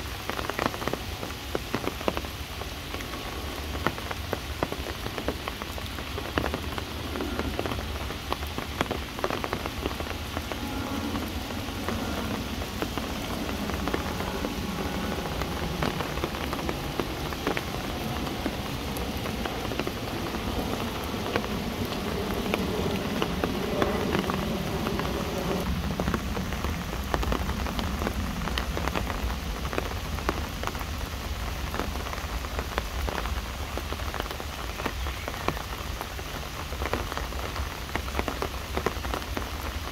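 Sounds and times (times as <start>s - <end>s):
rain on leaves and ground: 0.0s - 39.9s
raindrops ticking: 0.0s - 39.9s
low steady rumble: 3.1s - 32.8s.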